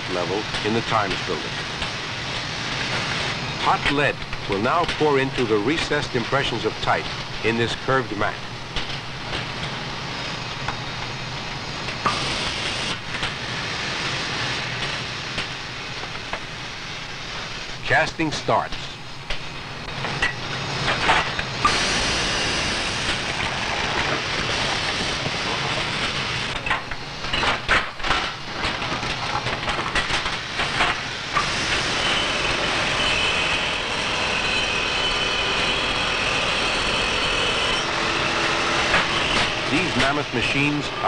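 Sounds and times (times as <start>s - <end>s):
casting machine running: 0.0s - 15.9s, 30.2s - 41.0s
machine hiss: 0.0s - 41.0s.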